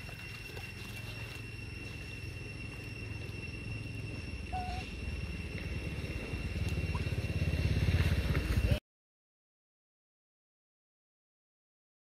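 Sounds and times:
motorcycle engine running: 0:05.3 - 0:08.8.

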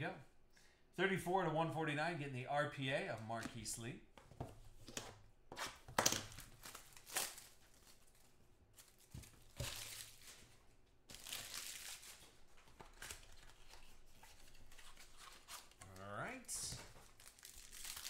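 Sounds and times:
foil wrappers crinkling and tearing: 0:06.4 - 0:10.5, 0:11.1 - 0:16.1, 0:17.0 - 0:18.0.

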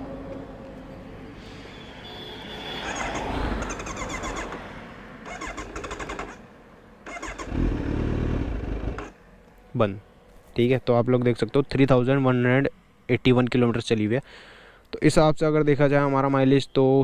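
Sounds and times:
motorcycle electric starter cranking: 0:02.9 - 0:04.6, 0:05.2 - 0:06.4, 0:07.0 - 0:09.1.

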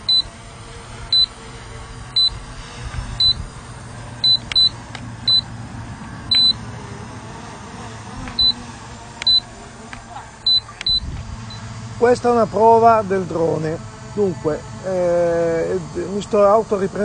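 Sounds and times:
high electronic beeps: 0:00.0 - 0:00.3, 0:01.1 - 0:01.3, 0:02.2 - 0:02.4, 0:03.2 - 0:03.4, 0:04.2 - 0:05.5, 0:06.3 - 0:06.6, 0:08.4 - 0:08.6, 0:09.2 - 0:09.4, 0:10.4 - 0:11.7
steady low hum: 0:00.0 - 0:17.0.

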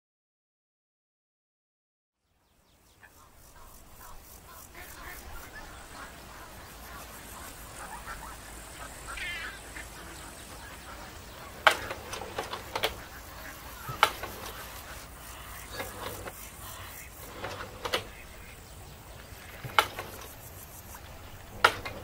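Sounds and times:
short bird calls: 0:02.8 - 0:22.0
ducks quacking: 0:02.9 - 0:22.0
sharp knocks: 0:11.5 - 0:13.1, 0:13.8 - 0:14.8.

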